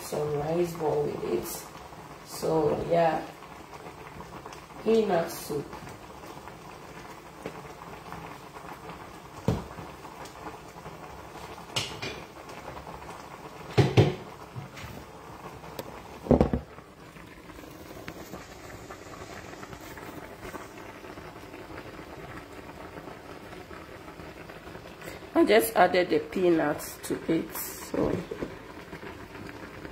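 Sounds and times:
soup simmering with bubbling hiss: 0:00.0 - 0:29.9
pot knocks and clatters: 0:11.7 - 0:12.3, 0:13.7 - 0:14.8, 0:16.2 - 0:16.7.

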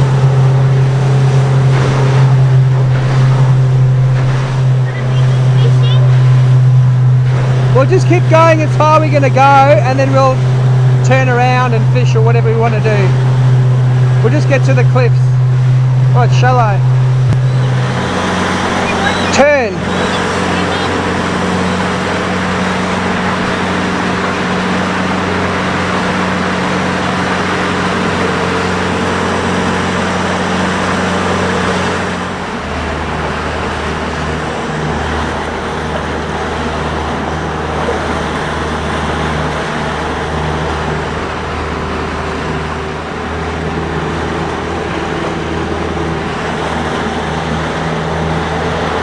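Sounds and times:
boat engine running: 0:00.0 - 0:49.0
water rushing: 0:00.0 - 0:49.0
wind: 0:00.0 - 0:49.0.

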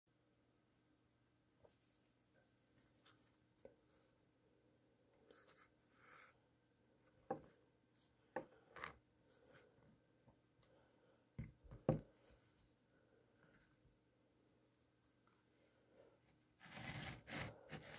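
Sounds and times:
soft rubbing handling noise: 0:01.6 - 0:04.2, 0:14.7 - 0:17.9.

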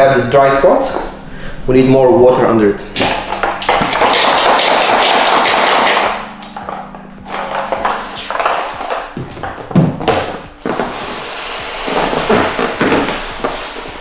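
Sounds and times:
hand pump sprayer hissing: 0:10.6 - 0:14.0.

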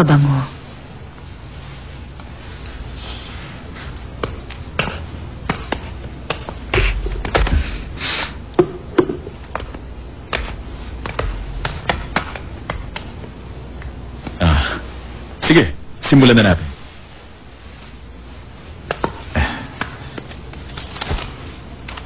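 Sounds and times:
steady low hum: 0:00.0 - 0:22.0
sharp taps and knocks: 0:08.5 - 0:14.4.

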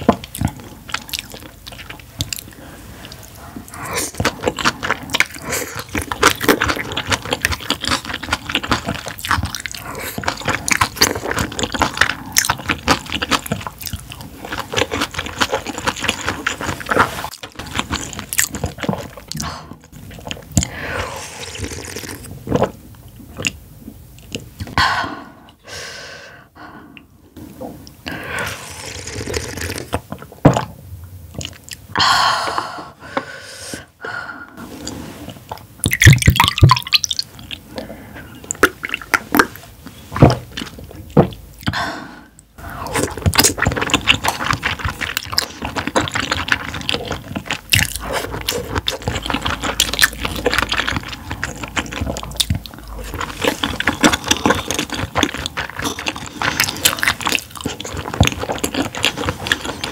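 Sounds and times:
wet chewing: 0:00.0 - 0:20.8, 0:35.3 - 0:41.8, 0:42.4 - 0:59.9.

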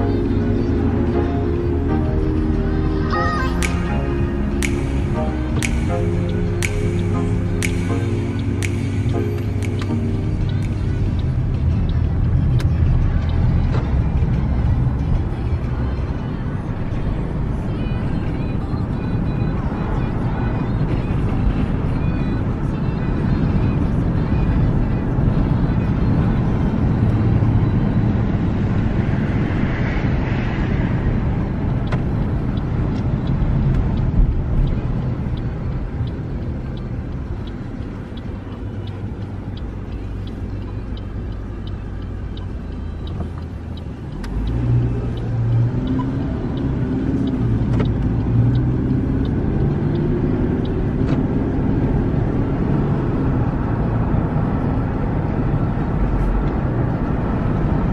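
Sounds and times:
tyre road noise: 0:00.0 - 0:57.9
car engine from inside cabin: 0:30.9 - 0:57.9.

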